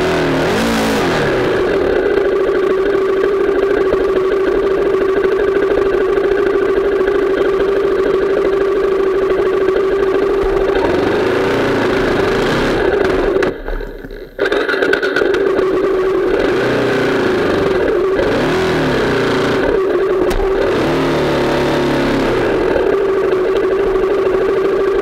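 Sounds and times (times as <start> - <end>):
dirt bike engine revving: 0.0 - 2.5, 9.6 - 13.6, 16.0 - 23.6.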